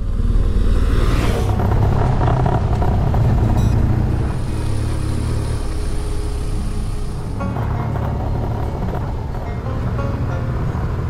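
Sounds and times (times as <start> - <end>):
low rumble: 0.0 - 11.0
motorcycle engine running: 0.0 - 11.0
tyres on dirt: 1.0 - 11.0
rushing hiss: 4.3 - 7.4.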